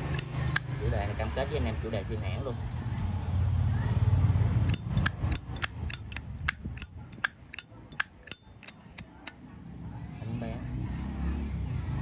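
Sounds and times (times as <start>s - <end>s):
lighter lid metallic clicks: 0.1s - 0.6s, 4.7s - 9.4s.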